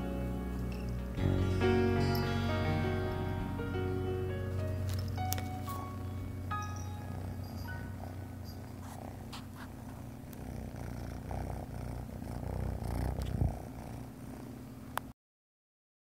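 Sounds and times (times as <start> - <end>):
cat purring: 4.5 - 15.1.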